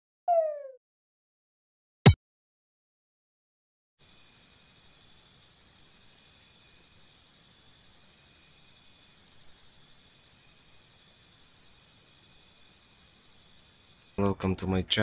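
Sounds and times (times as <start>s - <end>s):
pulsing insect chirp: 4.0s - 14.3s.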